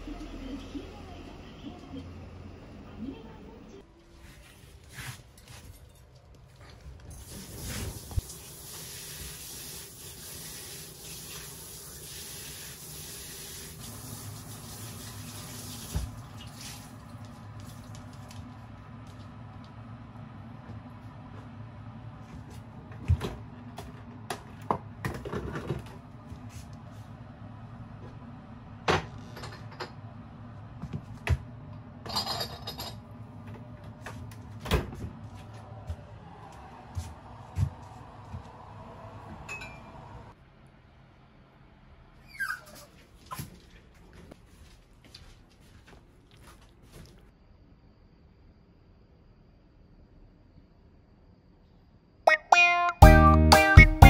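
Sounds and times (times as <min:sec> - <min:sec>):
tap water running: 0:07.2 - 0:18.6.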